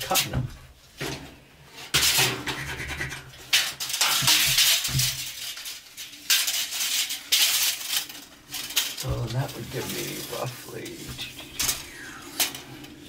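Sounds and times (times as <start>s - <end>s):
metal square scraping steel wall: 1.8s - 9.0s.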